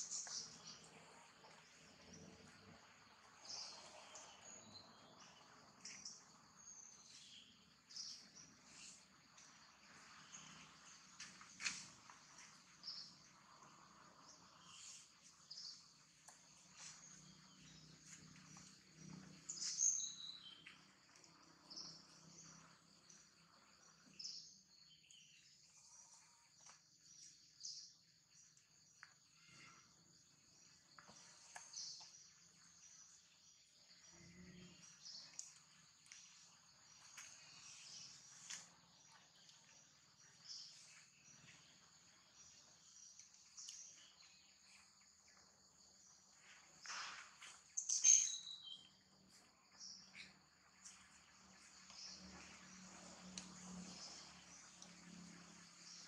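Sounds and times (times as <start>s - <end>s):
high insect drone: 29.2s - 56.0s
high bird chirps: 47.8s - 48.9s.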